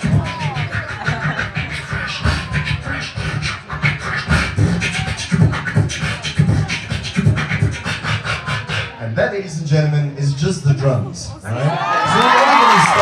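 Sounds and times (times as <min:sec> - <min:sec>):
person beatboxing: 0:00.0 - 0:09.2.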